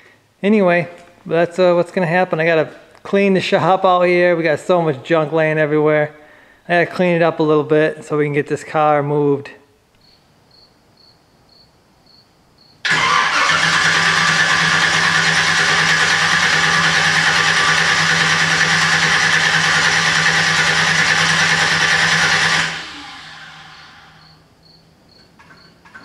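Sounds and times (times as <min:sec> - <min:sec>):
loud motor running: 0:12.9 - 0:24.4.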